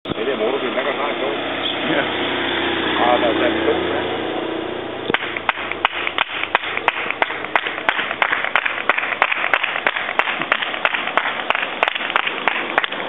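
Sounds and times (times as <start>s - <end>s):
hands clapping rhythmically: 5.1s - 13.0s.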